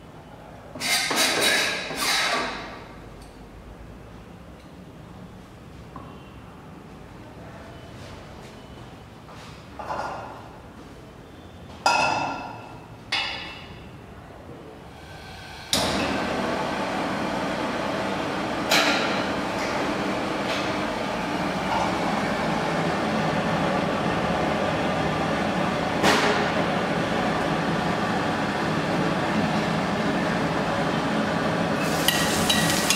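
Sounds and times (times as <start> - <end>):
gas burner flame hissing: 14.9 - 18.7, 31.6 - 32.9
wok clanking on metal grate: 32.0 - 32.9.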